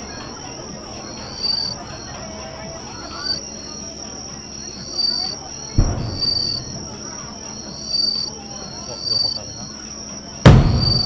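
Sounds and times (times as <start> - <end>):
high-pitched insect chirping: 0.0 - 11.0
firework shell bursting boom: 5.8 - 6.8, 10.4 - 11.0.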